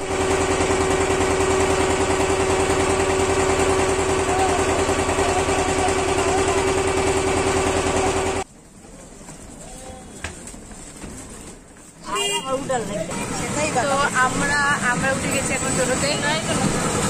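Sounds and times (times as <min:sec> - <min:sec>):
boat engine chugging: 0:00.1 - 0:08.4.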